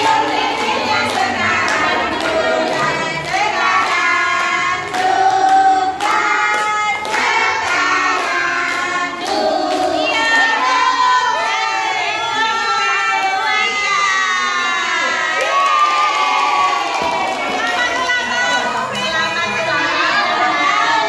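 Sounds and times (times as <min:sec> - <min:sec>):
people clapping: 0:00.0 - 0:21.0
women and children singing: 0:00.0 - 0:21.0.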